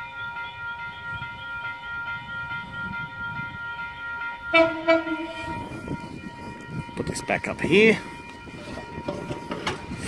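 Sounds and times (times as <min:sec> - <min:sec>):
train high-pitched whine: 0:00.0 - 0:07.3
train horn blast: 0:04.5 - 0:05.9.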